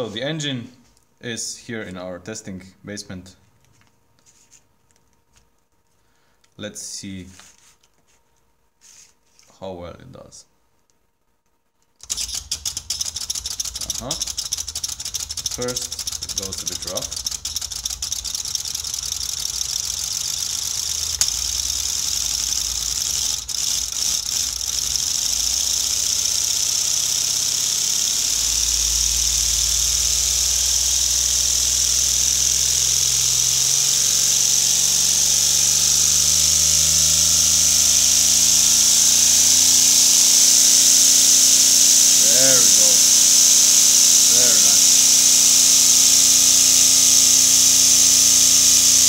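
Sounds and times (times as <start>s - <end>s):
valve clicks: 11.9s - 49.0s
compressed air hissing: 12.0s - 49.0s
rattling mechanical whir: 12.0s - 49.0s.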